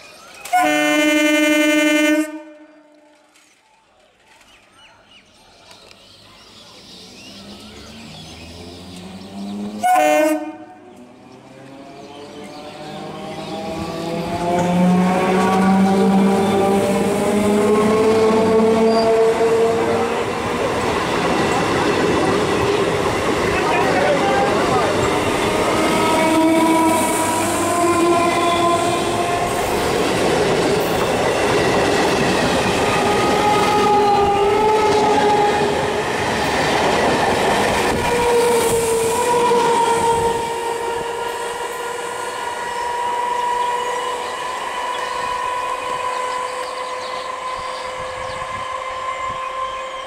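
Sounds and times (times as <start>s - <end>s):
long train horn: 0.5s - 3.3s, 9.7s - 11.0s, 25.4s - 29.8s, 32.8s - 36.1s, 38.0s - 50.0s
train wheels rumbling and clattering: 10.9s - 50.0s.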